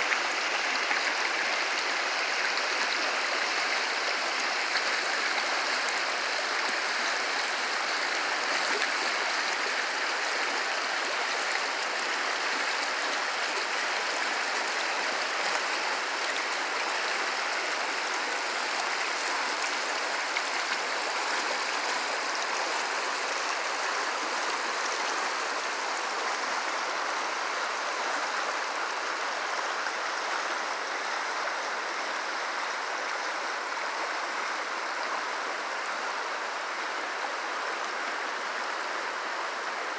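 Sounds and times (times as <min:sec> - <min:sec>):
stream rushing over stones: 0:00.0 - 0:39.9.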